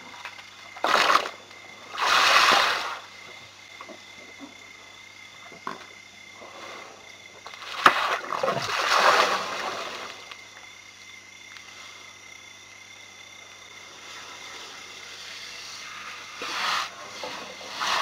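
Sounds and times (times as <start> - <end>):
water splashing and pouring: 2.0 - 3.0, 7.5 - 10.3
elephant trunk slapping water: 7.5 - 10.2.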